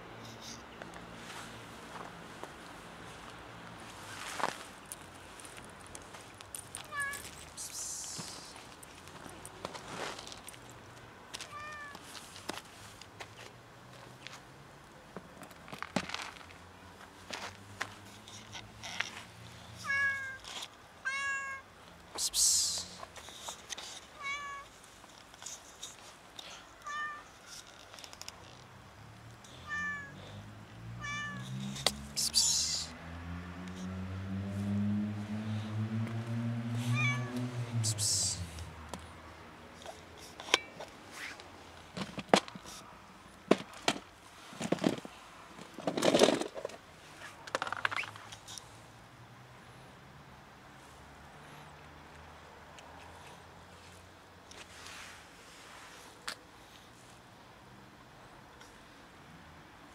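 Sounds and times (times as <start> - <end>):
cat meowing: 21.1 - 21.6, 24.2 - 24.6, 26.8 - 27.3, 29.6 - 30.2, 31.0 - 31.4, 36.9 - 37.4.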